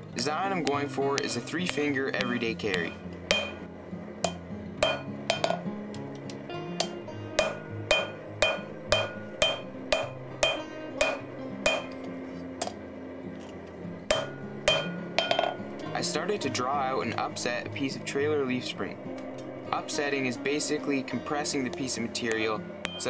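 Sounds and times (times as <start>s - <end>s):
background music: 0.0s - 23.0s
hammer striking steel on anvil: 0.4s - 12.8s, 14.1s - 16.0s, 21.6s - 23.0s.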